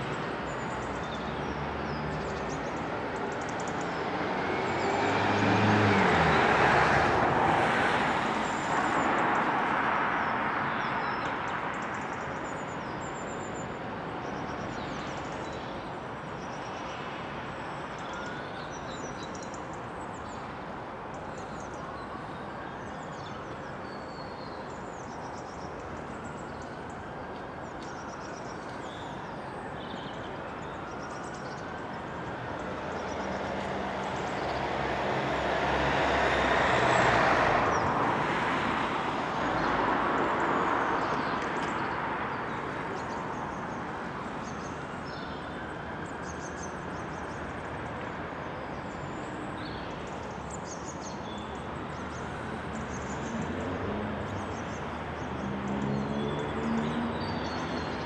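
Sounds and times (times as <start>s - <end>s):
background traffic: 0.0s - 58.0s
road vehicle passing: 3.6s - 10.4s, 31.2s - 58.0s.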